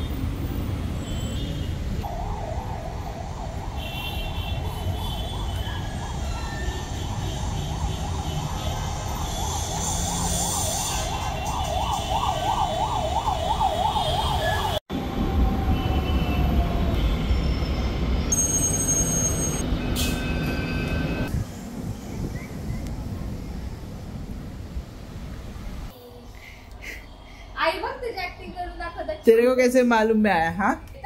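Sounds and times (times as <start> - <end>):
traffic noise: 0.0 - 31.0
siren warbling: 2.0 - 17.0
metro train rumble: 14.9 - 26.3.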